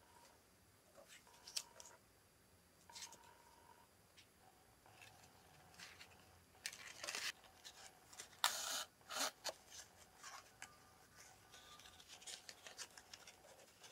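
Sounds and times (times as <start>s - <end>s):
card stock rustling and scraping: 4.9s - 13.9s.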